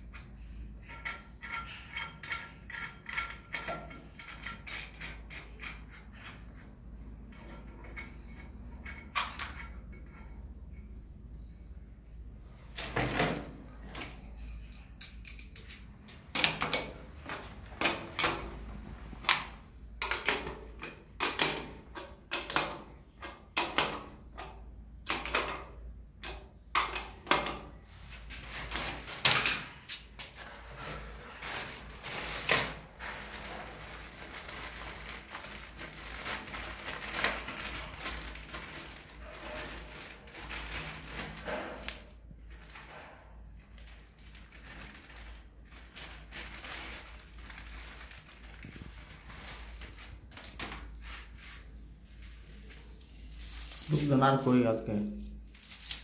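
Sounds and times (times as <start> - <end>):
plastic bag crinkling: 31.3 - 41.5, 43.7 - 51.5.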